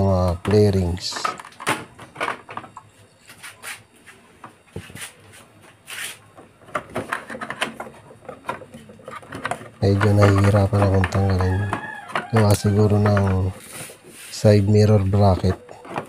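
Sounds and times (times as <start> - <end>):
plastic panels clicking and knocking: 0.4 - 2.9, 6.3 - 13.6, 15.2 - 16.0.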